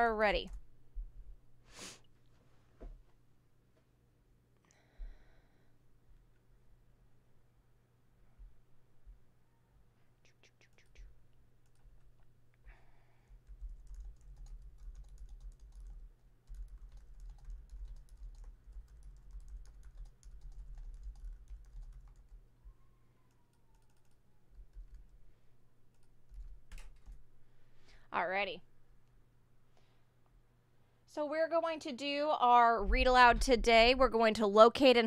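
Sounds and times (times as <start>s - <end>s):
typing on computer keyboard: 11.6s - 12.1s, 13.3s - 22.4s, 23.3s - 25.2s, 25.9s - 27.2s.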